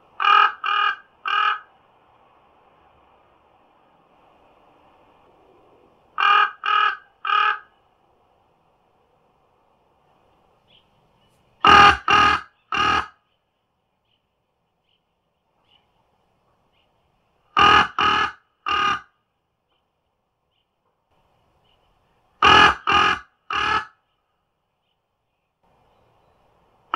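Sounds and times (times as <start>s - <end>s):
crow cawing: 0.2s - 1.7s, 6.2s - 7.8s, 11.6s - 13.2s, 17.6s - 19.1s, 22.4s - 24.0s.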